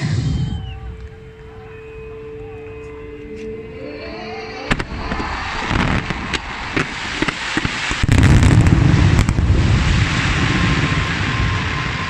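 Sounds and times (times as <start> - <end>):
fireworks reports: 0.0 - 3.9, 4.6 - 12.0
fireworks barrage: 4.6 - 12.0.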